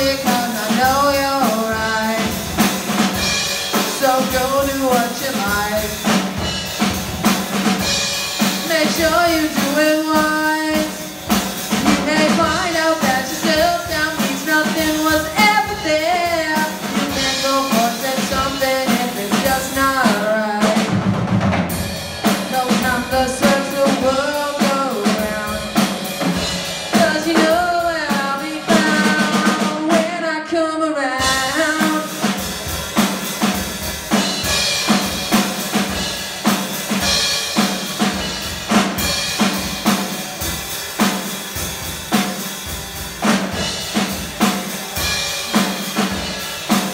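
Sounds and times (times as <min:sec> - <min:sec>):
person singing: 0:00.0 - 0:02.4, 0:03.8 - 0:06.1, 0:08.6 - 0:11.2, 0:11.8 - 0:20.9, 0:22.4 - 0:26.0, 0:26.9 - 0:33.5
drum kit beat: 0:00.0 - 0:30.3, 0:31.1 - 0:46.9.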